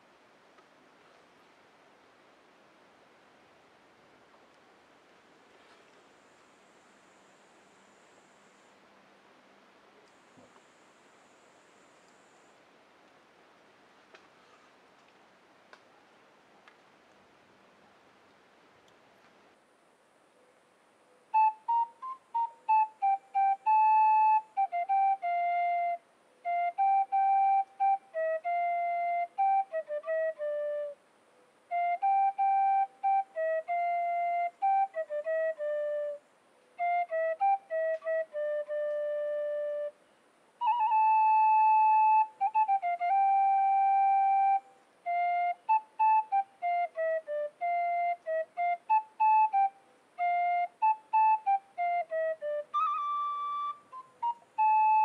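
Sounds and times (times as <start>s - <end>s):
flute melody: 21.2s - 31.0s, 31.6s - 55.0s.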